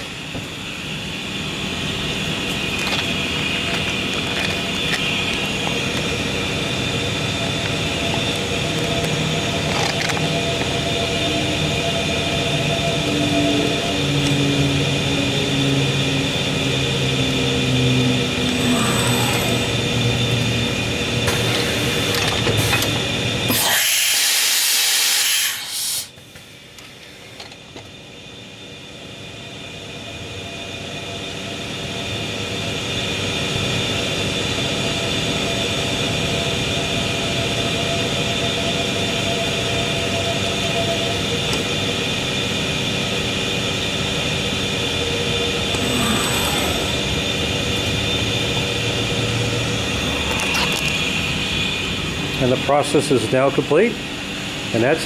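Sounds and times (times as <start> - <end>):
router machinery droning: 0.0 - 28.4, 32.2 - 55.0
loud hiss: 23.5 - 26.2.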